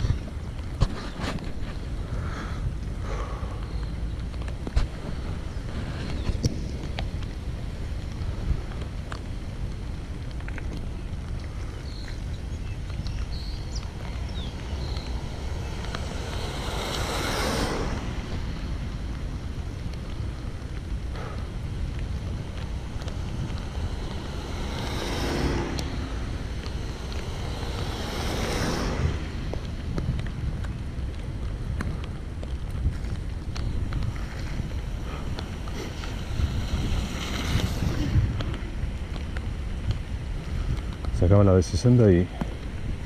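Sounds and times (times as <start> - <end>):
low rumble: 0.0 - 41.3
wind buffeting microphone: 0.0 - 43.0
swells of hiss: 14.3 - 18.5.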